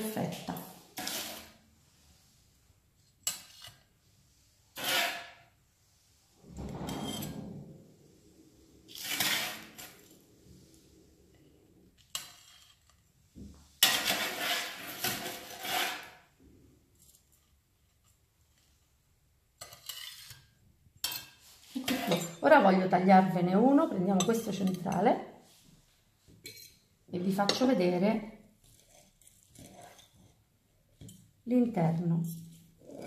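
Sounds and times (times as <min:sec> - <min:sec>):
metal spatula scraping on plate: 0:00.9 - 0:01.6, 0:03.2 - 0:03.9, 0:04.7 - 0:05.6, 0:06.5 - 0:08.2, 0:08.9 - 0:10.3, 0:12.0 - 0:13.0, 0:13.8 - 0:16.3, 0:19.6 - 0:22.6, 0:26.4 - 0:27.7, 0:28.6 - 0:30.4.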